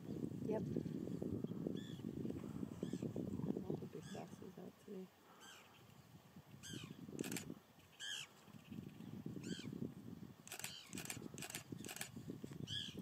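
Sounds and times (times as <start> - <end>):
sharp clicks: 7.2 - 7.5, 10.5 - 12.1.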